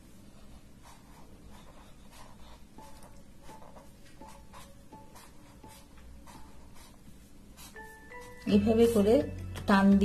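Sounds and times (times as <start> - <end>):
felt-tip pen scratching paper: 0.8 - 7.0.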